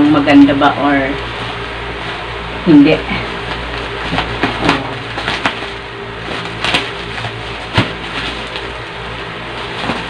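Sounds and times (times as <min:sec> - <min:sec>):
steady low hum: 0:00.0 - 0:10.0
bubble wrap crinkling: 0:01.2 - 0:10.0
sharp crackles: 0:05.1 - 0:08.9.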